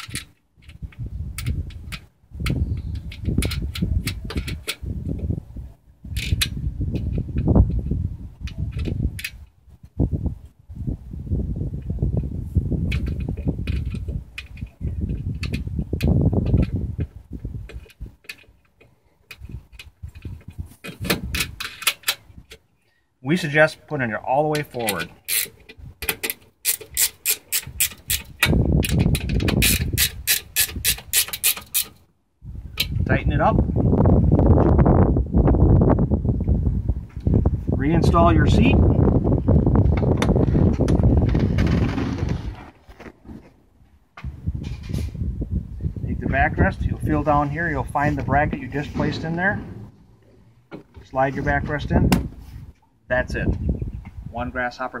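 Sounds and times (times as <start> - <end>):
socket ratchet clicking: 24.8 - 32.0.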